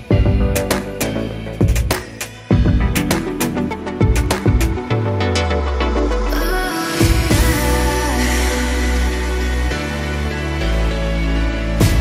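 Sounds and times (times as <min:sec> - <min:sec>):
background music with bass beat: 0:00.0 - 0:12.0.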